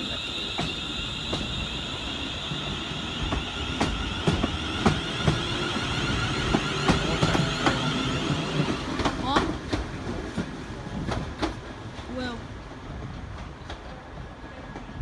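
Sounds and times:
train rumble: 0:00.0 - 0:15.0
train wheels clicking over rail joints: 0:03.2 - 0:12.1.

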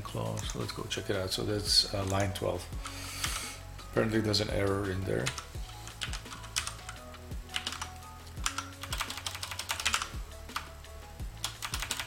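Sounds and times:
faint background music: 0:00.0 - 0:12.0
computer keyboard typing: 0:02.0 - 0:03.4, 0:04.7 - 0:10.7, 0:11.4 - 0:12.0.

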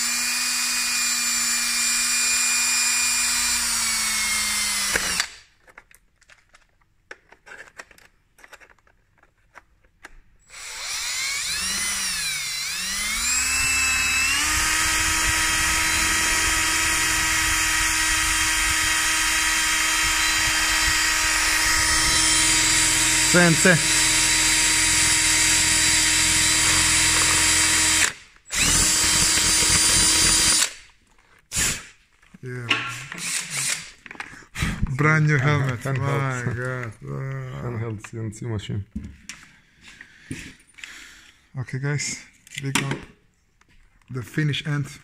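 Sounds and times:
cordless drill whining: 0:00.0 - 0:05.4, 0:10.4 - 0:30.8, 0:31.5 - 0:31.9, 0:33.1 - 0:34.3.

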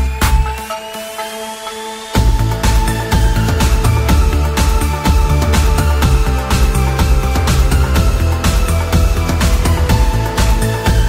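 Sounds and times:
electronic music with heavy bass: 0:00.0 - 0:11.0.

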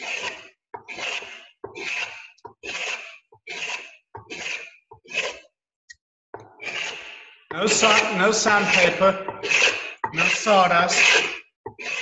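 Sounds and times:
blade shaving wood: 0:00.0 - 0:05.5, 0:06.4 - 0:12.0.

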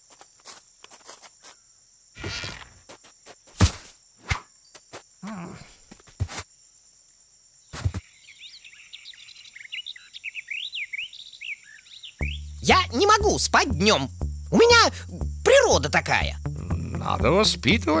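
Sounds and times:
crickets chirring: 0:00.0 - 0:18.0
cushion thudding on grass: 0:03.5 - 0:04.5
birds twittering: 0:07.9 - 0:13.2.

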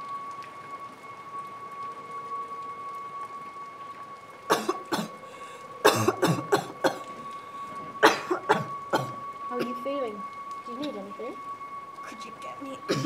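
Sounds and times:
woman coughing: 0:04.5 - 0:05.1, 0:05.8 - 0:07.0, 0:08.0 - 0:09.2.

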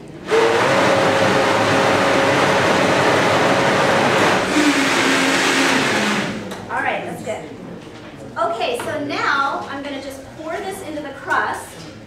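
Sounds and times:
blender running: 0:00.2 - 0:06.5.

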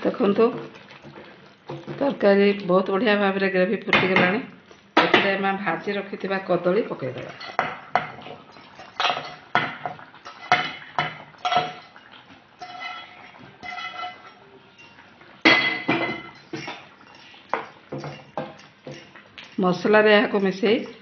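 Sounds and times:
cookware knocking and clinking: 0:09.0 - 0:12.0, 0:12.6 - 0:16.8, 0:17.6 - 0:19.1.

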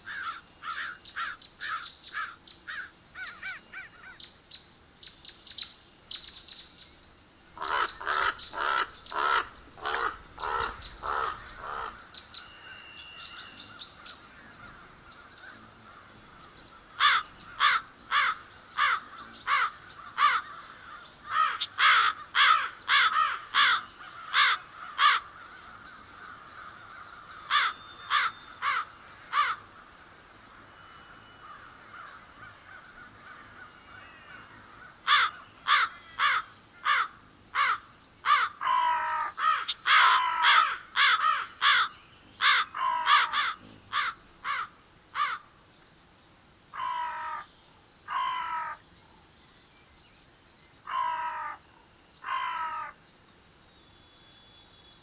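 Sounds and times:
crows cawing: 0:00.0 - 0:04.2, 0:07.6 - 0:12.8, 0:13.4 - 0:29.6, 0:31.4 - 0:45.5, 0:46.7 - 0:47.5, 0:48.1 - 0:48.8, 0:50.9 - 0:51.6, 0:52.2 - 0:53.0.

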